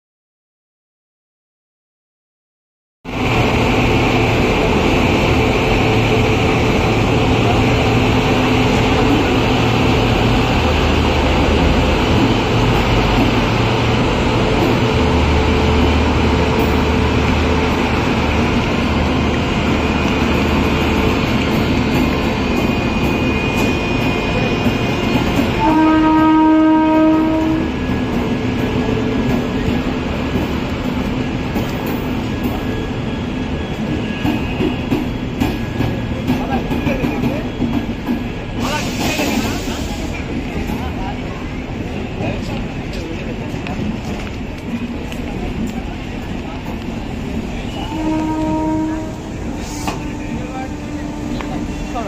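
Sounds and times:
train coaches rolling past: 0:03.1 - 0:52.0
train horn: 0:25.4 - 0:27.8, 0:47.6 - 0:52.0.

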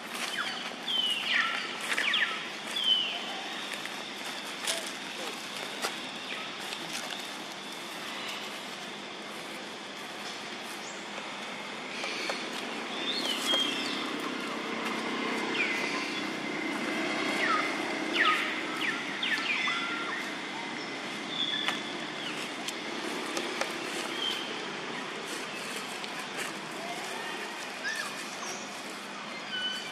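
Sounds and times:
high chirping bird calls: 0:00.2 - 0:03.8, 0:12.0 - 0:22.6, 0:23.9 - 0:26.4, 0:27.0 - 0:29.9.

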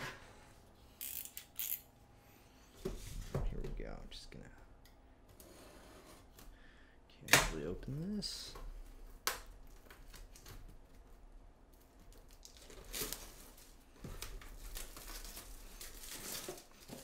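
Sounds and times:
plastic shrink-wrap crinkling: 0:11.7 - 0:17.0
plastic tearing: 0:11.8 - 0:17.0.

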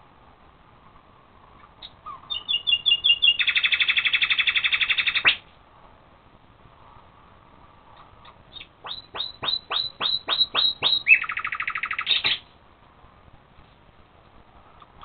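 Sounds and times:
young badgers chittering: 0:01.8 - 0:05.4, 0:08.2 - 0:12.5.

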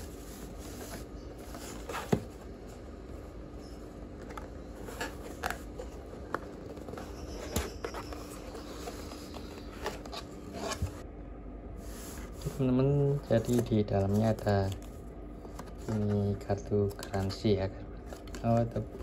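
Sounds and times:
cardboard scraping and rustling: 0:00.0 - 0:02.8, 0:03.6 - 0:11.0, 0:11.8 - 0:17.4
faint steady hum: 0:00.0 - 0:19.0.

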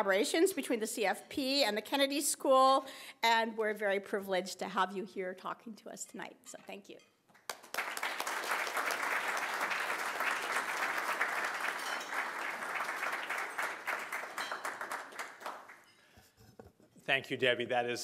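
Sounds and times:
audience applauding: 0:07.4 - 0:15.9.

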